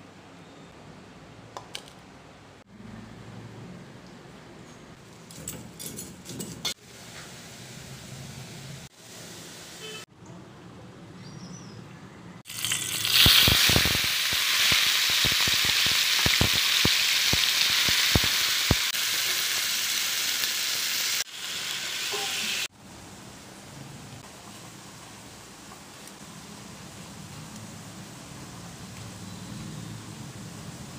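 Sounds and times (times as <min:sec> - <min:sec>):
shrimp sizzling in hot oil: 0:12.5 - 0:22.7.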